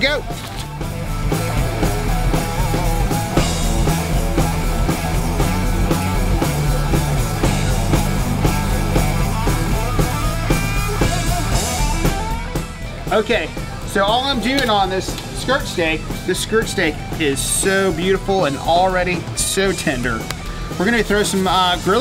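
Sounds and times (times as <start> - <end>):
rock music: 0.0 - 22.0.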